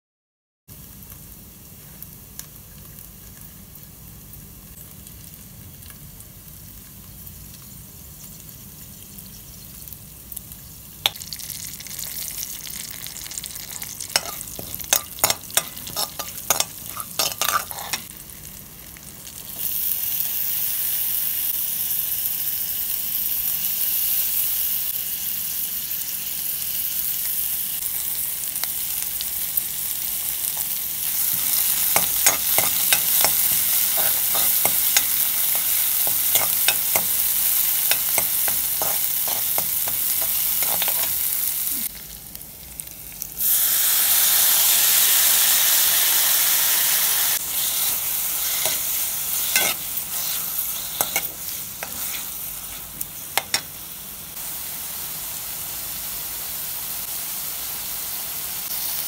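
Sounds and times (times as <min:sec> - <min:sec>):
loud steady sizzle: 0:00.7 - 0:59.0
seeds crackling in hot oil: 0:00.7 - 0:59.0
steel ladle stirring: 0:13.7 - 0:18.0.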